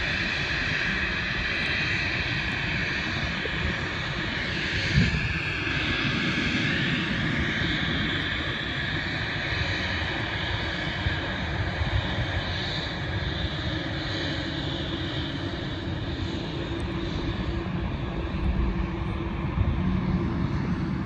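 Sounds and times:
jet engines roaring and whining: 0.0s - 21.0s.

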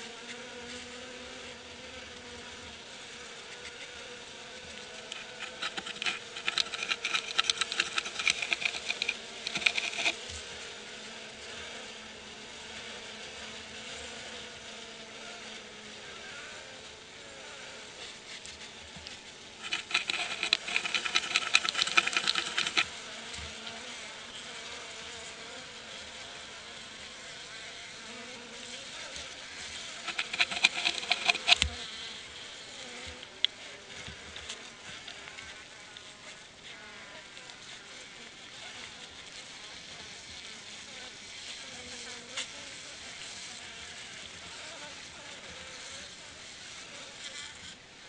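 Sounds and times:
honey bees humming: 0.1s - 48.0s
scratching on wooden board: 4.7s - 10.4s, 19.0s - 23.5s, 29.6s - 31.9s.

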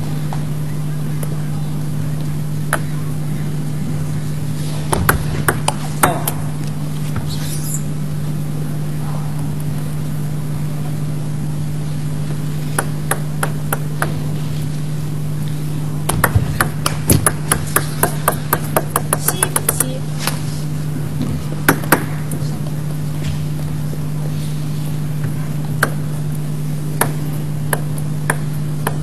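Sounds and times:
steady low hum: 0.0s - 29.0s
table tennis ball clicking: 16.1s - 20.0s.

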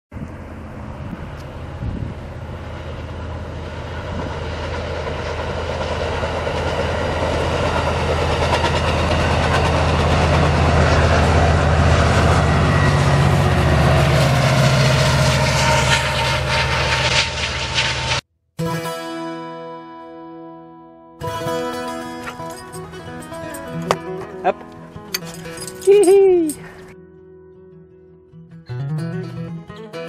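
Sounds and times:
diesel locomotive drone: 0.1s - 18.2s, 21.2s - 27.0s
train cars rolling: 0.4s - 18.2s
wheels clicking on track: 2.5s - 18.0s.

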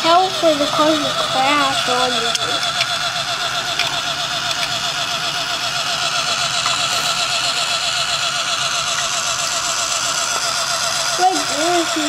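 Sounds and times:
toy car electric motor whine: 0.0s - 12.0s.

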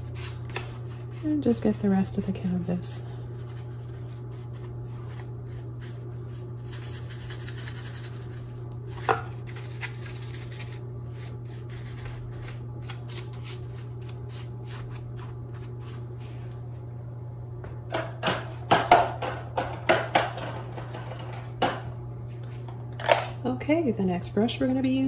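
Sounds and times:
steady low hum: 0.0s - 25.0s
brush scratching on canvas: 3.3s - 8.5s.

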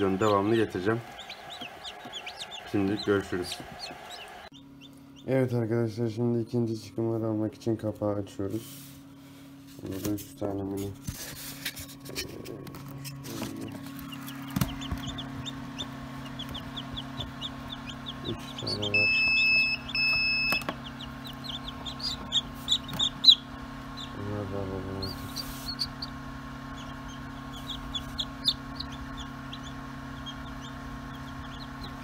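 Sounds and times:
chicks peeping: 0.0s - 5.7s, 13.0s - 32.0s
low machine hum: 0.0s - 32.0s
long electronic beeps: 18.6s - 20.8s.

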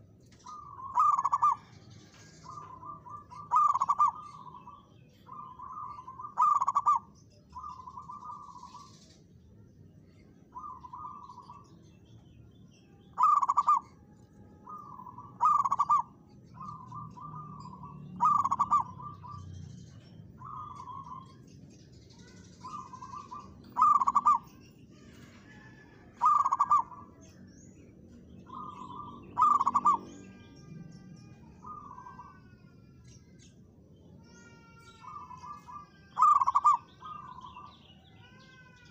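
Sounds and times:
dove cooing: 0.0s - 1.7s, 2.5s - 8.6s, 13.2s - 13.9s, 14.6s - 19.4s, 22.6s - 24.6s, 25.4s - 27.1s, 28.5s - 30.1s, 35.1s - 37.7s.

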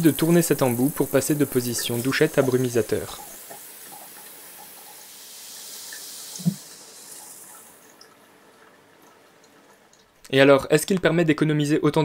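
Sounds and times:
fine water spray hiss: 0.0s - 7.9s.

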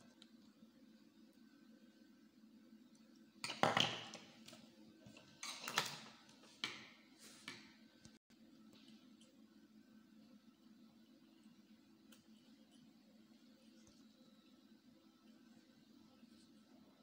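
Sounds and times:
low steady hum: 7.2s - 17.0s.

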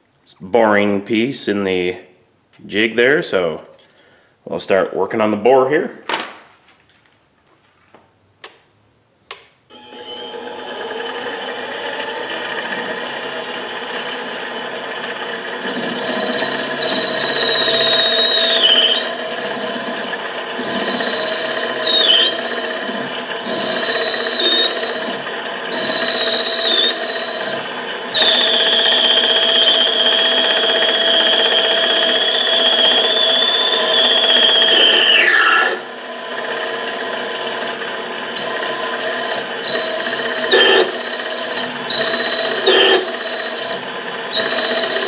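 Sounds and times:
lathe motor running: 9.8s - 45.0s
high-pitched squeal of metal cutting: 15.6s - 45.0s.

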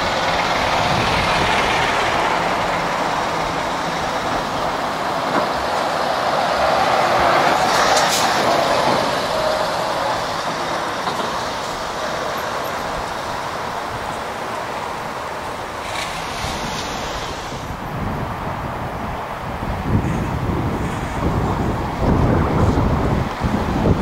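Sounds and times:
truck driving past: 0.0s - 18.2s.

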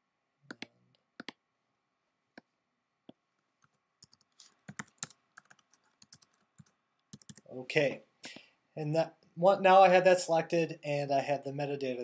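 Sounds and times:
computer keyboard typing: 3.6s - 7.5s.

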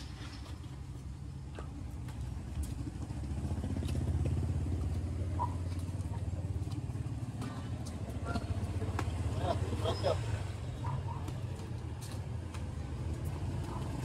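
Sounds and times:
motorcycle engine running: 1.9s - 11.6s.

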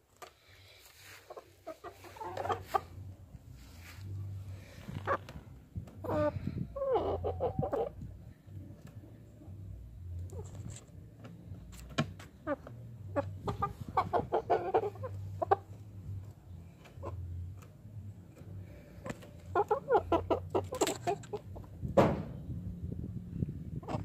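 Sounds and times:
chickens clucking: 0.2s - 9.1s, 11.7s - 17.8s, 18.4s - 21.8s, 23.6s - 24.0s.

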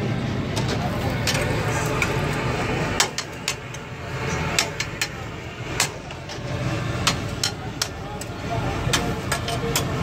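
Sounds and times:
low rumble of traffic: 0.0s - 10.0s.

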